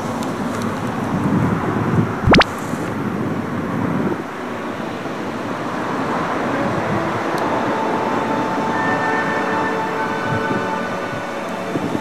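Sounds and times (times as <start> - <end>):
wind rumbling on microphone: 0.0 - 8.4, 10.1 - 12.0.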